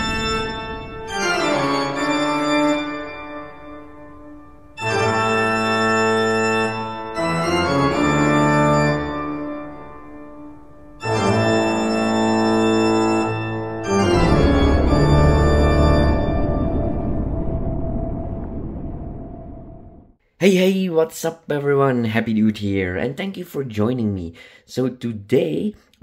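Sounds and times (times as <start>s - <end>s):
organ chords: 0.0s - 18.8s.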